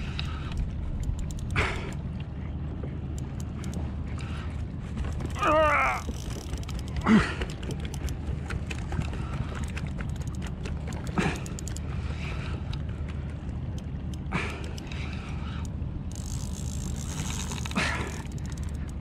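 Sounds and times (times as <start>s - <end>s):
low rumble: 0.0s - 19.0s
fishing reel clicking: 0.1s - 1.9s, 5.9s - 8.2s, 9.6s - 11.8s, 13.8s - 19.0s
rod creaking: 5.1s - 11.9s, 14.1s - 19.0s.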